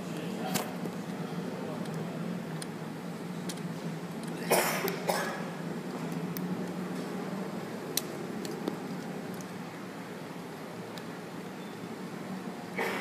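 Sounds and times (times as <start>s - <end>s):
steady low hum: 0.0s - 13.0s
person coughing: 4.4s - 5.5s, 12.8s - 13.0s.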